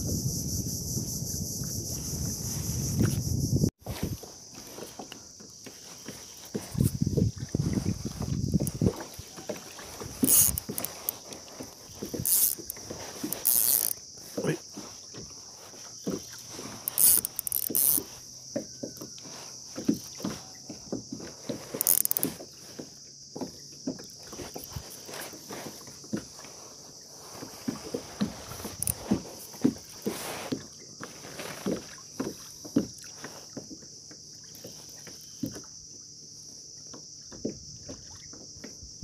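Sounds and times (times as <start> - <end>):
clothing rustling against camera: 3.8 - 18.2.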